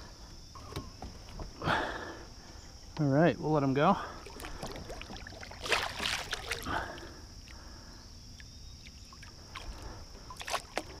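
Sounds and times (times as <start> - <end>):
water splashing and sloshing: 4.0 - 11.0.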